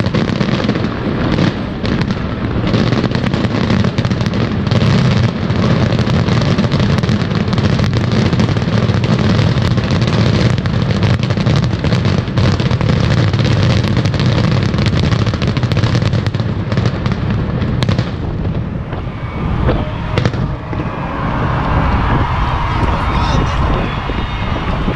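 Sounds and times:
fireworks bangs and crackles: 0:00.0 - 0:24.9
low rumble: 0:18.4 - 0:24.9.

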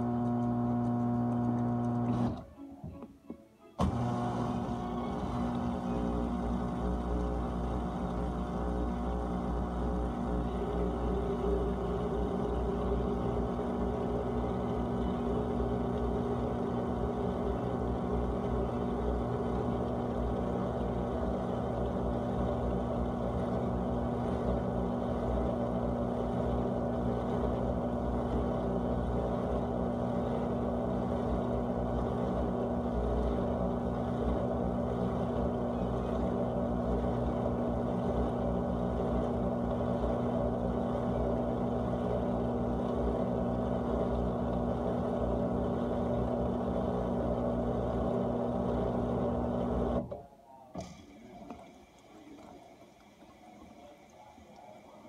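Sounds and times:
dishwasher pump humming: 0:00.0 - 0:03.1, 0:03.8 - 0:55.0
circulating water: 0:50.8 - 0:55.0.

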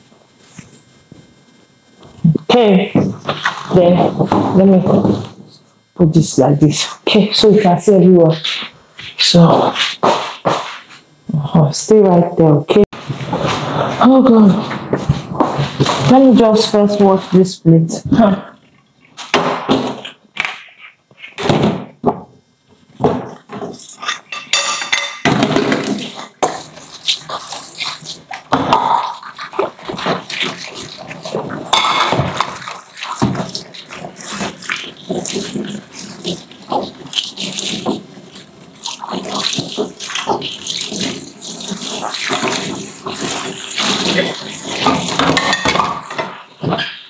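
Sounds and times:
dishes clinking against sink: 0:24.0 - 0:26.0, 0:44.9 - 0:47.0
water splashing from kitchen tap: 0:29.2 - 0:46.2.

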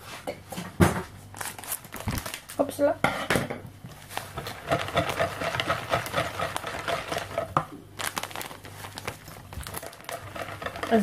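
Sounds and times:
whisk scraping in plastic bowl: 0:04.0 - 0:07.6, 0:09.6 - 0:11.0.

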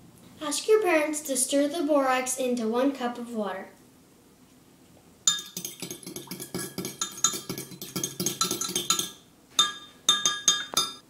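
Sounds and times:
fork clinking against glass: 0:05.3 - 0:11.0.

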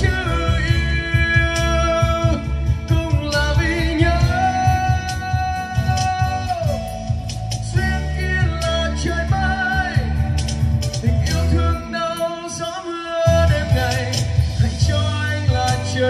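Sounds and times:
backing music with beat and guitar: 0:00.0 - 0:16.0
man singing into microphone: 0:00.0 - 0:16.0.

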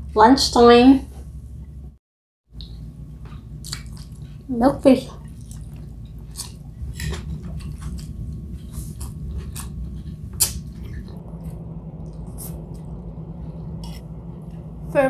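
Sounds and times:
low steady hum: 0:00.0 - 0:02.0, 0:02.6 - 0:15.0
person chewing: 0:02.6 - 0:04.5, 0:05.2 - 0:14.8.

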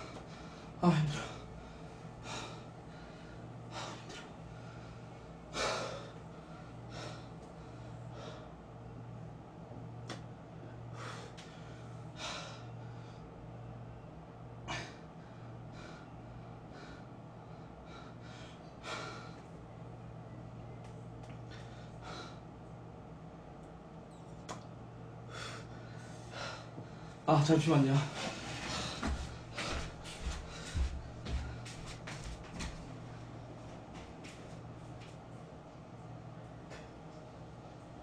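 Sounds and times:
man breathing heavily: 0:00.0 - 0:09.2, 0:10.4 - 0:13.6, 0:14.6 - 0:20.4, 0:21.3 - 0:22.7, 0:25.2 - 0:27.3, 0:27.9 - 0:35.2
low electrical hum: 0:00.0 - 0:38.0.

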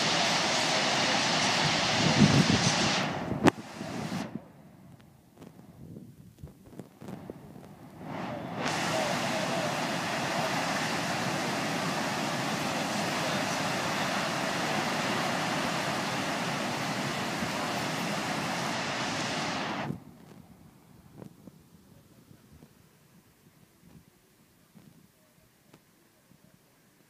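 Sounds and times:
water rushing over spillway: 0:00.0 - 0:04.3, 0:07.8 - 0:20.0.

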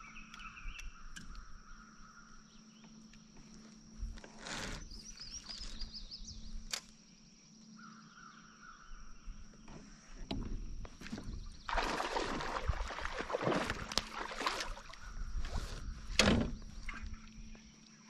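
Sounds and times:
small birds chirping: 0:00.0 - 0:03.6, 0:04.8 - 0:06.7
kayak clicks: 0:13.4 - 0:14.8.

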